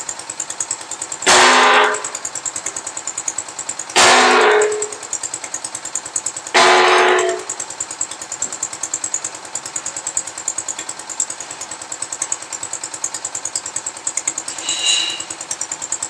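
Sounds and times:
diesel engine chugging: 0:00.0 - 0:16.0
short high-pitched squeal: 0:14.4 - 0:15.6.

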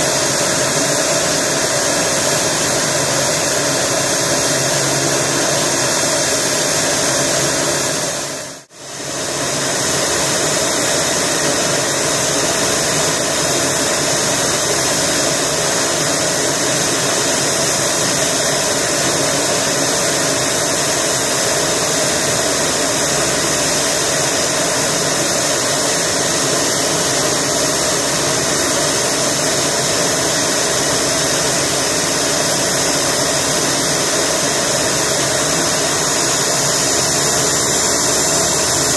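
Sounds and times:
turboprop engine whine: 0:00.0 - 0:38.9.

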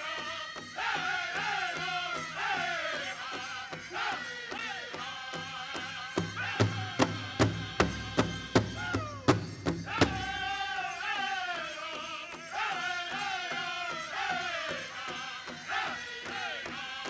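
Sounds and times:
group singing high voices: 0:00.0 - 0:17.0
big drum beating: 0:06.2 - 0:10.6.

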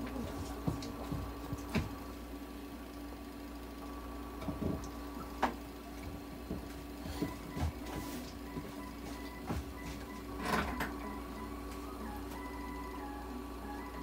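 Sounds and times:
nebulizer machine hum: 0:00.0 - 0:14.0.

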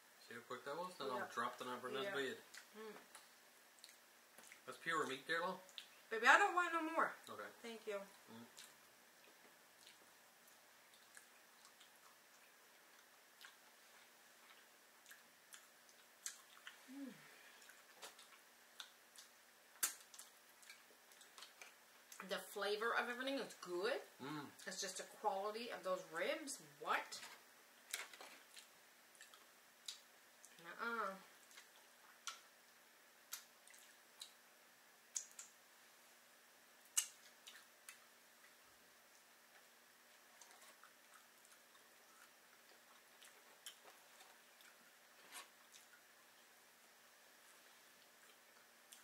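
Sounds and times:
faint steady hum: 0:00.0 - 0:49.0
chewing clicks and smacks: 0:02.5 - 0:04.6, 0:08.6 - 0:13.6, 0:14.5 - 0:16.8, 0:17.6 - 0:22.3, 0:27.9 - 0:30.6, 0:31.4 - 0:32.5, 0:35.1 - 0:35.6, 0:36.9 - 0:39.3
person humming: 0:02.8 - 0:03.0, 0:16.8 - 0:17.4, 0:24.2 - 0:24.6
wet mouth clicks and lip smacks: 0:35.1 - 0:35.6, 0:36.9 - 0:38.0.

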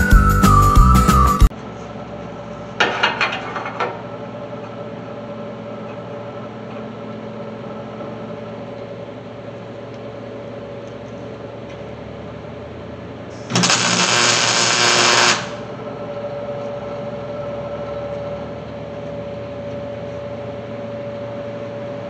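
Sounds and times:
steady background hum: 0:01.5 - 0:22.0
welder crackling: 0:13.4 - 0:15.7.

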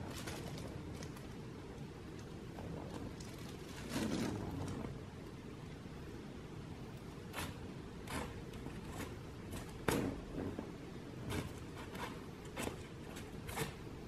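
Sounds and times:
faint low background noise: 0:00.0 - 0:14.0
kitten claws scratching on mat: 0:11.2 - 0:13.8.

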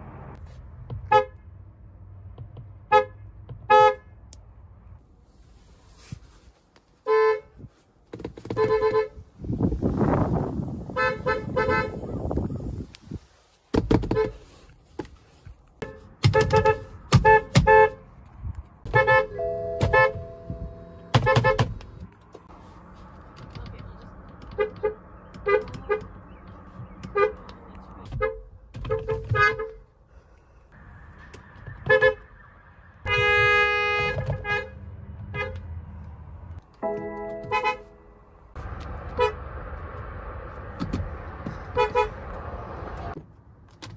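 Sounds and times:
car horn toots: 0:11.0 - 0:12.1, 0:18.9 - 0:21.8, 0:33.0 - 0:35.6, 0:36.8 - 0:38.1, 0:41.7 - 0:42.2.

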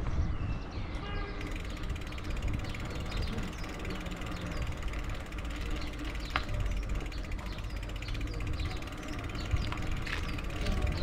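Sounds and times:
bicycle freewheel ticking: 0:01.4 - 0:11.0.

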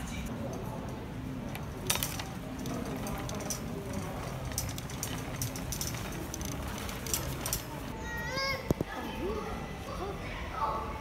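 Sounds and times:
shopping cart rattling: 0:00.5 - 0:08.2.

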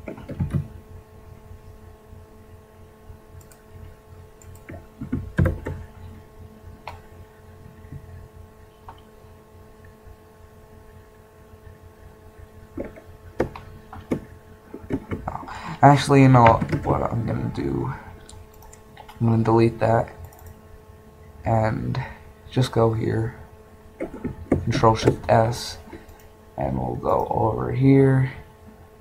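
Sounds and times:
keyboard and mouse clicks: 0:00.0 - 0:00.7, 0:03.4 - 0:03.6, 0:04.4 - 0:05.8, 0:12.8 - 0:15.4, 0:18.3 - 0:19.2, 0:20.2 - 0:20.6
steady hum: 0:00.0 - 0:29.0.

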